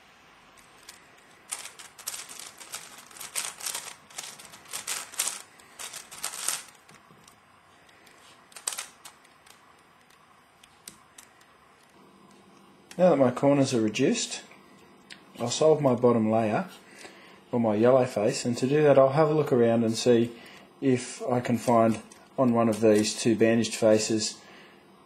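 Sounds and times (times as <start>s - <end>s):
puzzle cube clicking when turned: 8.5s - 11.5s.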